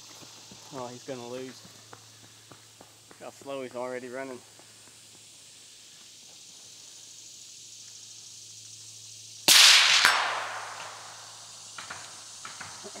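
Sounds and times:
rifle shots with echo: 9.5 - 12.7.

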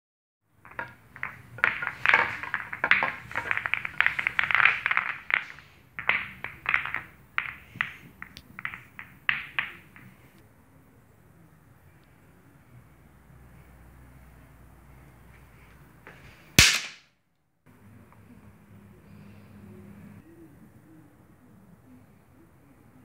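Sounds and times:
pool balls clacking: 0.6 - 10.4.

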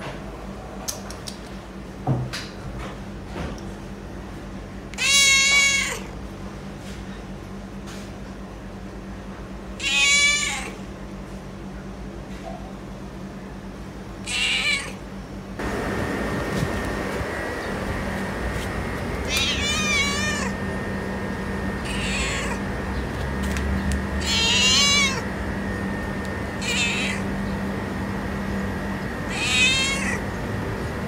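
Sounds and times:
cat meowing: 4.9 - 6.1, 9.8 - 10.8, 14.2 - 15.0, 19.2 - 20.6, 21.8 - 22.7, 24.2 - 25.3, 26.6 - 27.3, 29.3 - 30.3.

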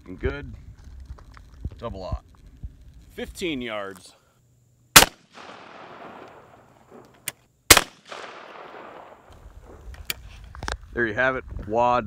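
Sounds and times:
shotgun blasts with echo: 5.0 - 7.1, 7.7 - 9.8.

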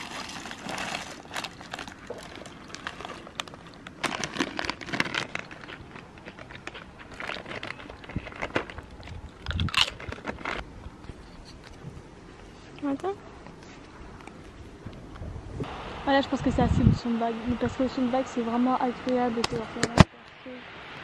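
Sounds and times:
dry food pouring: 0.0 - 10.6
crunchy snack being chewed: 0.0 - 11.8
plastic packet crinkling: 0.0 - 11.8.

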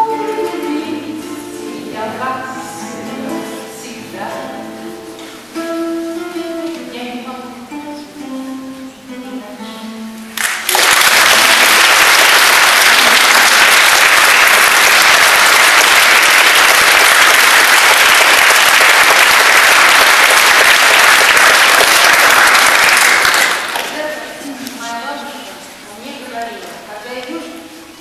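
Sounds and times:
audience applause: 10.4 - 24.0.

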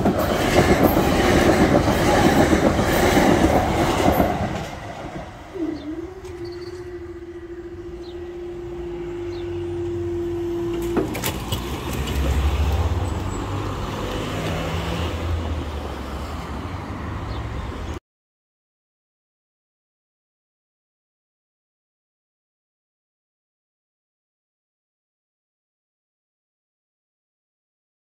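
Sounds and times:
crossing barrier mechanism hum: 0.0 - 16.4
electric train rushing past: 0.0 - 17.8.

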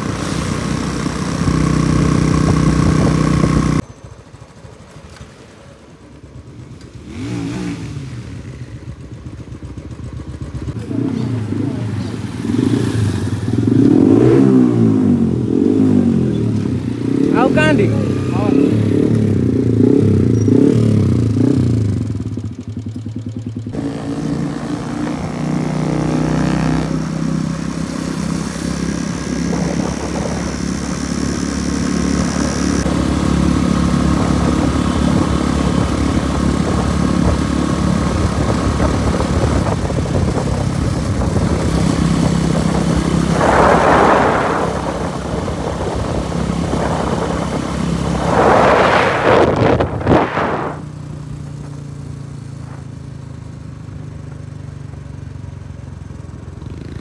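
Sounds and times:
motorcycle engine running: 0.0 - 57.0
rushes of noise: 23.8 - 51.8.

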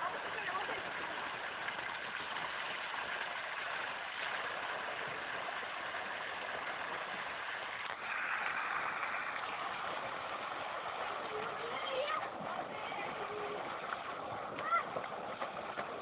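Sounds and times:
water gushing from a pipe: 0.0 - 16.0
steady rushing noise: 6.6 - 16.0.

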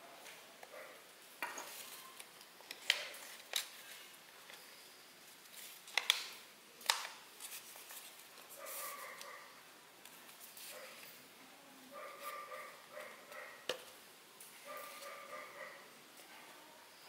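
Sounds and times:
stiff paper crinkling and snapping: 1.8 - 4.0, 5.5 - 9.4.

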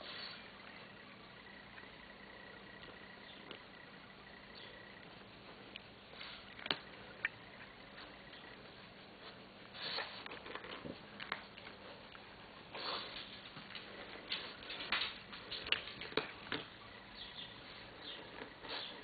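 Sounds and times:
cat crunching dry kibble: 10.2 - 12.3, 13.2 - 16.7.

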